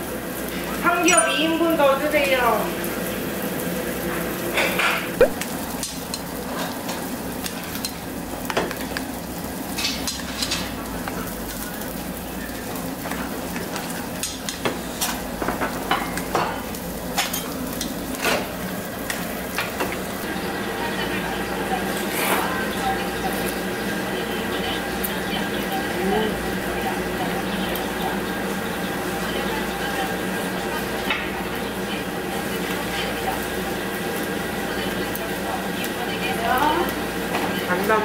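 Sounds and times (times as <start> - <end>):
meat sizzling on a grill: 0.0 - 38.0.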